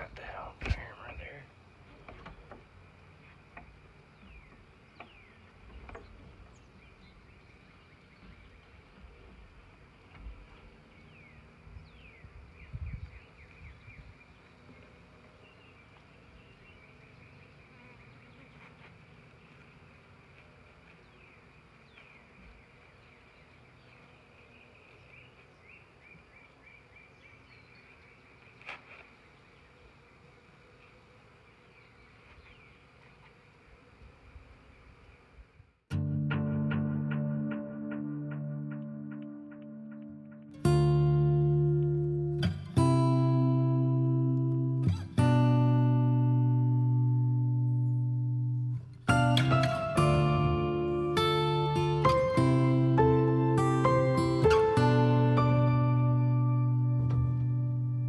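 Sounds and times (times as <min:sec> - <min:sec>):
honey bees buzzing past: 0:14.2 - 0:35.4, 0:49.1 - 0:58.0.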